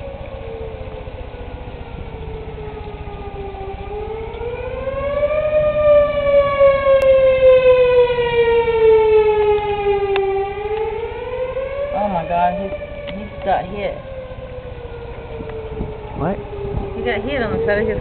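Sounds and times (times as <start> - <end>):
warning siren wailing: 0.0 - 18.0.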